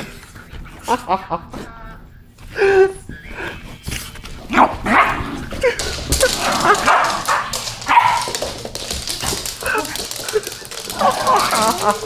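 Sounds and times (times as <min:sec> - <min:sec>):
dogs yipping and barking: 0:06.2 - 0:08.4.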